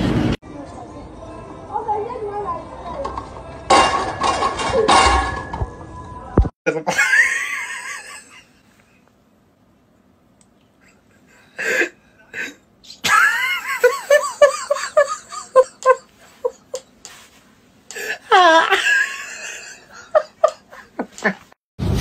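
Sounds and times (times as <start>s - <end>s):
person laughing hard: 6.7s - 8.5s, 10.9s - 16.9s, 17.9s - 21.5s.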